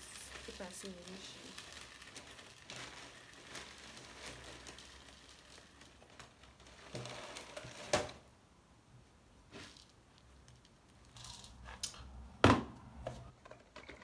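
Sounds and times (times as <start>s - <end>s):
rustling handling noise: 0.0s - 8.3s, 9.3s - 12.2s.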